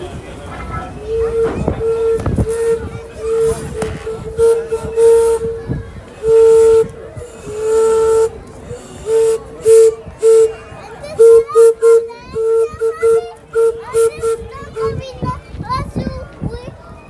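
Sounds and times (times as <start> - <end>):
locomotive whistle blasts: 1.0 - 15.0.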